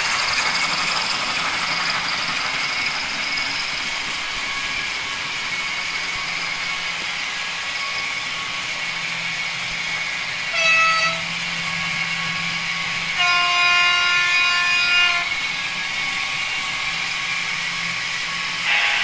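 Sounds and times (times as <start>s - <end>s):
model train rolling along track: 0.0s - 19.0s
model locomotive horn: 10.5s - 11.3s, 13.1s - 15.4s, 18.6s - 19.0s.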